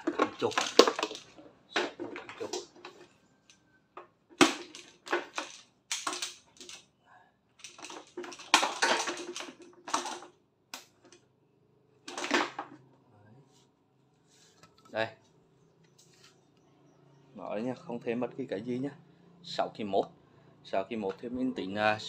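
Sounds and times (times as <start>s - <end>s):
hose and cord clattering: 0.0s - 3.1s, 7.6s - 10.3s.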